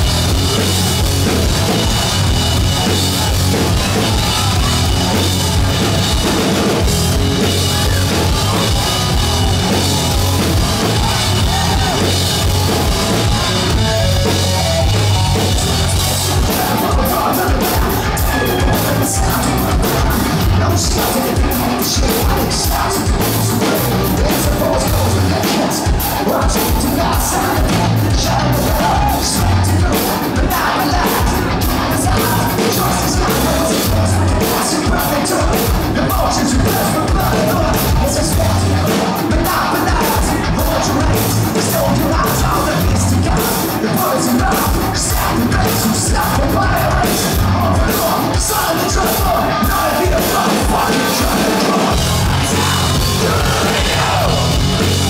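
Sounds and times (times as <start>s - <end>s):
person shouting singing: 0.0s - 55.0s
rock band playing: 0.0s - 55.0s.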